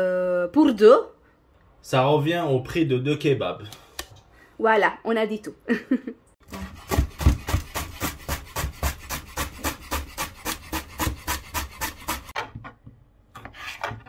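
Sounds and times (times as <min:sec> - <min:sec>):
knife chopping on cutting board: 0:06.5 - 0:12.4.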